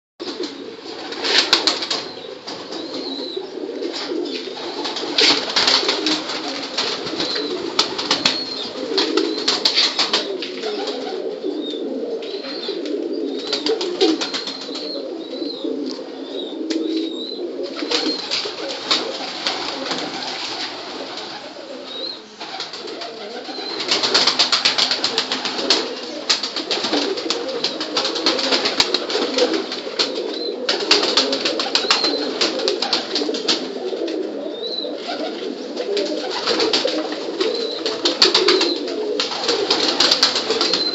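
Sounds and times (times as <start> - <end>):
pigeons cooing: 0.2 - 40.9.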